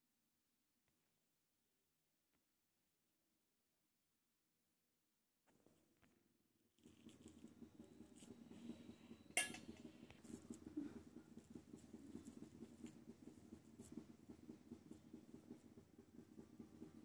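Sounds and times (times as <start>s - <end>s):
fingers folding dough: 6.7s - 17.0s.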